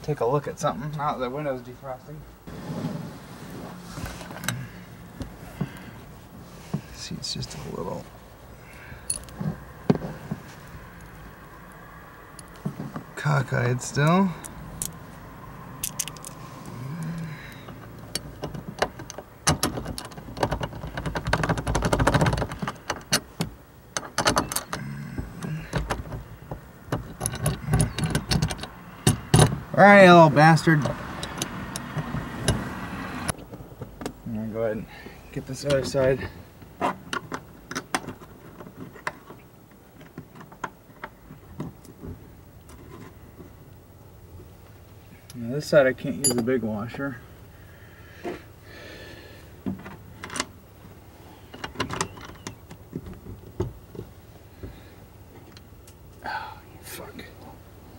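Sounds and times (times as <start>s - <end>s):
metallic clinks: 8.9s - 9.4s, 15.8s - 16.4s, 46.2s - 46.6s.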